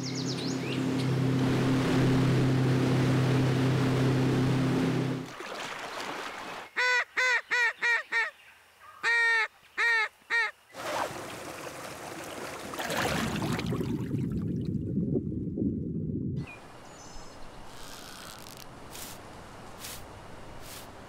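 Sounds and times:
stream water flowing: 1.4s - 6.7s, 10.8s - 14.1s.

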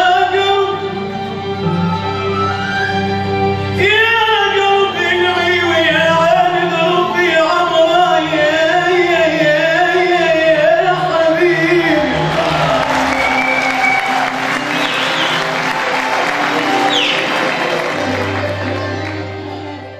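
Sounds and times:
man singing ornamented line: 0.0s - 1.1s, 3.7s - 13.3s
orchestra sustained notes: 11.0s - 19.9s.

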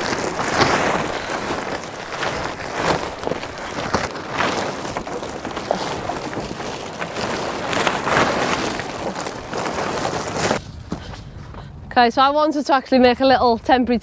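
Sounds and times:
plastic sheet rustling and crackling: 0.0s - 10.8s.

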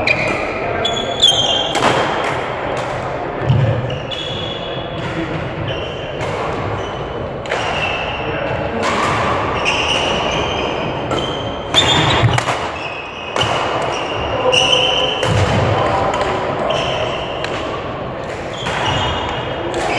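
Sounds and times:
shoes squeaking on floor: 0.0s - 1.7s, 3.5s - 5.0s, 9.5s - 13.2s, 13.9s - 15.2s, 16.6s - 17.3s
racket hitting shuttlecock: 1.7s - 3.7s, 11.1s - 14.2s, 15.2s - 19.9s.

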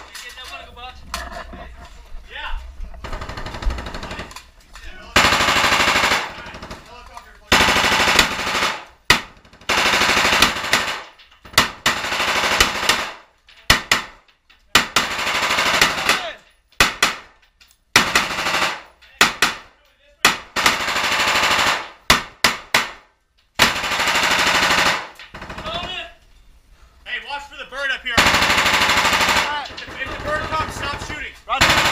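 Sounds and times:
automatic rifle fire: 5.2s - 6.5s, 7.5s - 14.2s, 20.3s - 23.0s, 23.6s - 25.7s, 28.2s - 31.9s.

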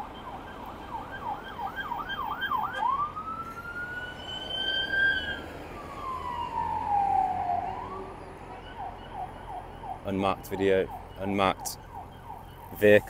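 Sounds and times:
emergency vehicle siren: 0.0s - 13.0s
traffic hum: 0.0s - 13.0s.

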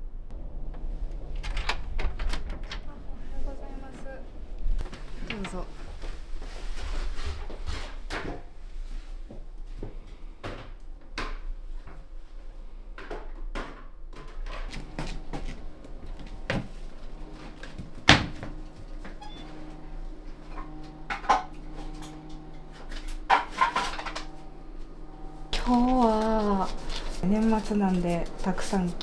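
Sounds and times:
low steady hum: 0.0s - 29.0s
footsteps on hard floor: 14.7s - 19.2s.

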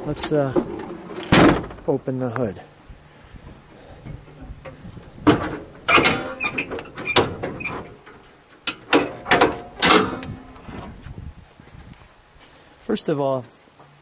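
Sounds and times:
metal hood latch clicks and clanks: 4.4s - 10.9s.

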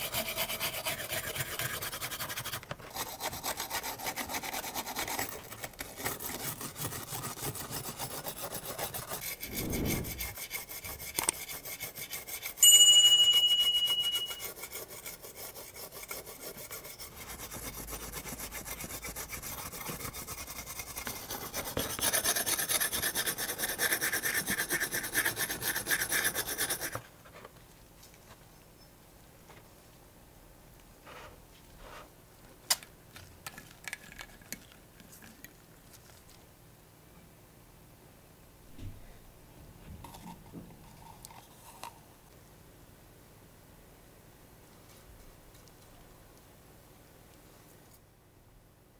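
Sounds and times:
wire brush scrubbing metal: 6.2s - 12.6s
high ringing tone: 12.6s - 14.5s.

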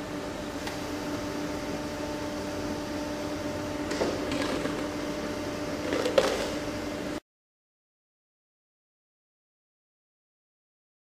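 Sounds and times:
steady machine hum: 0.0s - 7.2s.

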